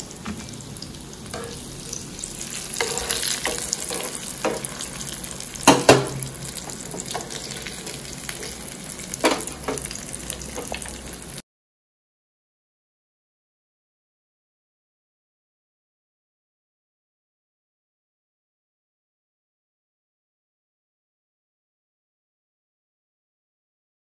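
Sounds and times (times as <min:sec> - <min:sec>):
fish frying in hot oil: 0:00.0 - 0:11.4
utensil knocking against pan: 0:02.8 - 0:04.8, 0:05.6 - 0:07.4, 0:09.2 - 0:09.9.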